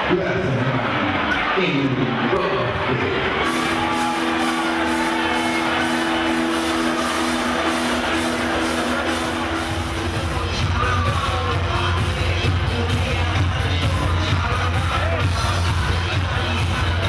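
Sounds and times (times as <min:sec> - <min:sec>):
heavy bass beat: 0:02.0 - 0:17.0
club music sustained chord: 0:02.8 - 0:12.9.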